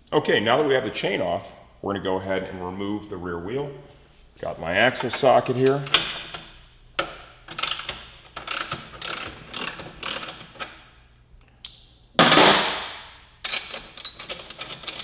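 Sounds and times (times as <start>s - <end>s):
ratchet wrench clicking: 7.5s - 10.7s.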